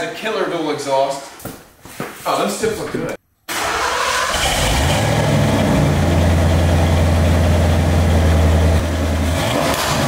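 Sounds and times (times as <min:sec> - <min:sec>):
car engine idling: 0:04.6 - 0:09.6.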